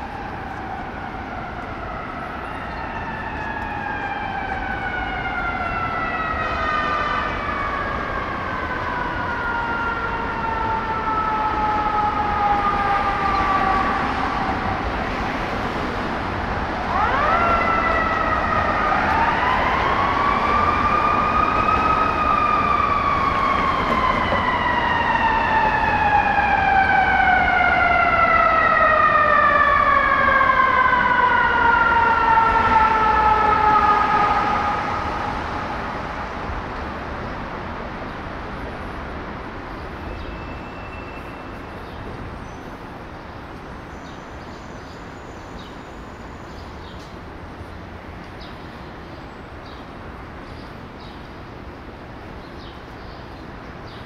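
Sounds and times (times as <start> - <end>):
city traffic noise: 0.0 - 54.0
emergency vehicle siren: 0.0 - 54.0.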